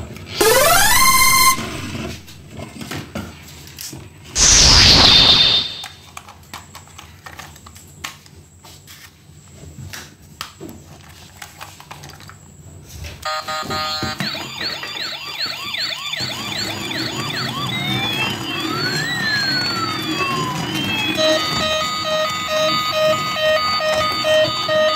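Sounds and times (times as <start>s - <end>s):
toy electronic siren wailing: 0.3s - 2.2s, 13.3s - 24.9s
short beep: 0.4s - 2.2s, 4.4s - 5.9s.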